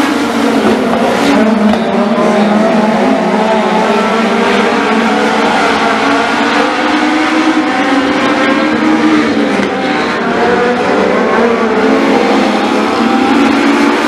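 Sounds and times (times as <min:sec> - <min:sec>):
race car engines at high revs: 0:00.0 - 0:14.0.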